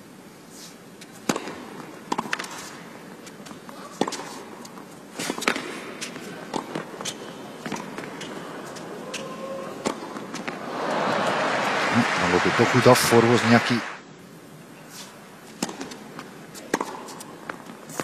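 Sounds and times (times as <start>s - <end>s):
tennis ball bouncing: 1.2s - 2.5s, 4.0s - 9.2s, 9.8s - 10.6s, 15.5s - 17.8s
racket hitting tennis ball: 1.2s - 2.7s, 3.9s - 4.4s, 5.2s - 9.2s, 9.8s - 10.6s, 15.5s - 18.0s.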